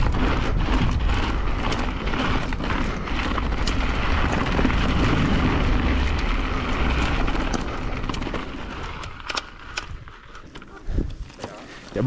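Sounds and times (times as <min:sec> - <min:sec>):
wind buffeting microphone: 0:00.0 - 0:11.3
bike rattling clicks and knocks: 0:00.0 - 0:12.0
bike tyres rumbling over rock: 0:00.0 - 0:12.0.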